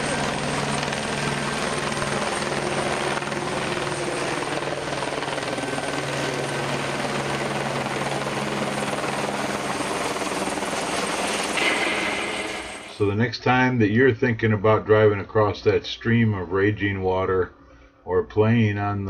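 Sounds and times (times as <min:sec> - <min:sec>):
helicopter flying overhead: 0:00.0 - 0:13.2.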